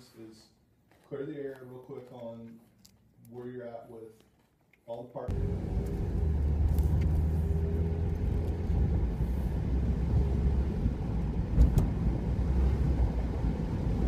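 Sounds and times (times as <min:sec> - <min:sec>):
car engine and road noise: 0:05.3 - 0:14.0.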